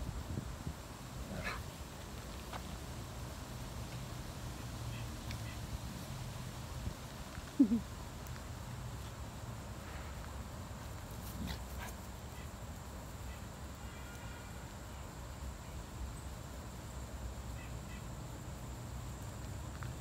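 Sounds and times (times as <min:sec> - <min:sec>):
dogs playing: 0:01.2 - 0:03.0, 0:10.9 - 0:12.4.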